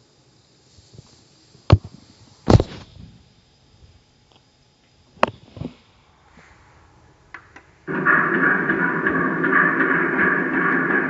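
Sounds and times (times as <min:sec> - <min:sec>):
sharp knocks and clacks: 0:07.3 - 0:11.0.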